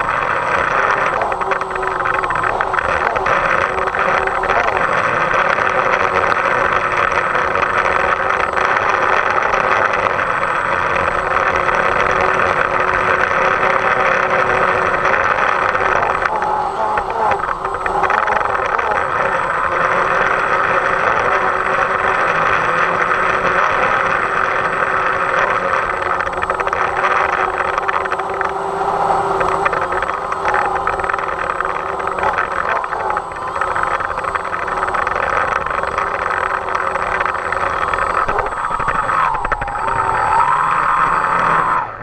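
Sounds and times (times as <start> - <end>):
drone propellers whining: 0.0 - 42.0
wind on microphone: 0.0 - 42.0.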